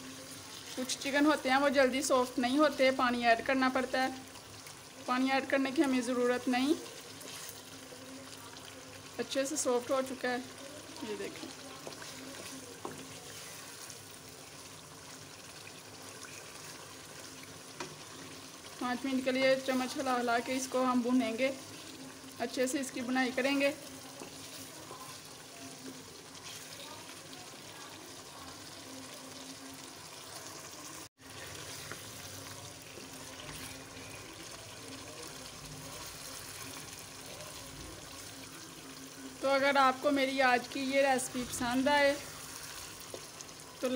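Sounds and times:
food sizzling in a wok: 0:00.0 - 0:43.9
wooden spoon stirring: 0:06.8 - 0:09.1, 0:09.8 - 0:27.4, 0:31.2 - 0:39.2.

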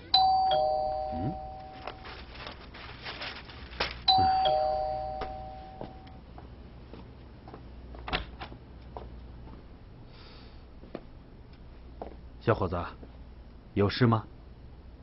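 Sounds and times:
doorbell ding-dong chime: 0:00.0 - 0:02.0, 0:04.1 - 0:06.2.

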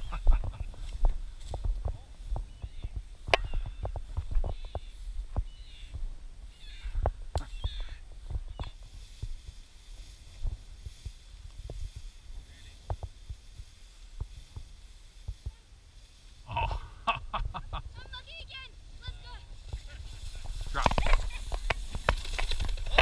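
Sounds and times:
footsteps in tall dry grass: 0:00.0 - 0:16.5, 0:17.6 - 0:23.0
grass stalks brushing: 0:00.0 - 0:16.8, 0:17.6 - 0:23.0.

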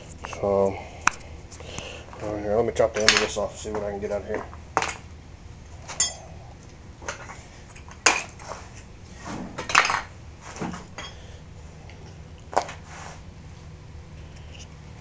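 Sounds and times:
metal tools clinking on concrete: 0:05.9 - 0:06.3, 0:11.0 - 0:11.2.

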